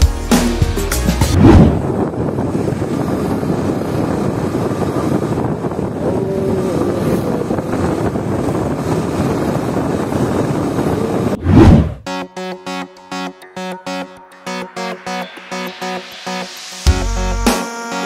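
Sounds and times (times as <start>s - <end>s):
wind on microphone: 1.3s - 12.1s.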